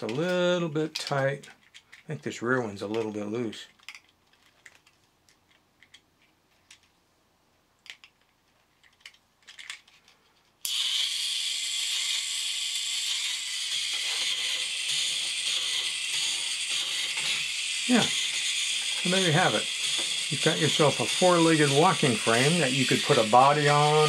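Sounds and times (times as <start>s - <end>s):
gearmotor running: 10.7s - 24.0s.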